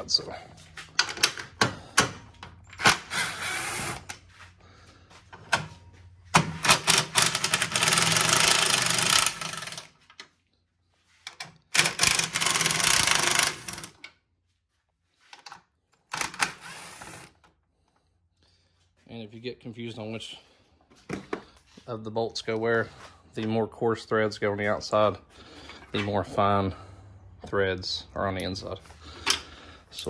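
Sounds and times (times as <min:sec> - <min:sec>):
impact wrench rattling: 0:06.2 - 0:10.2, 0:11.3 - 0:14.0.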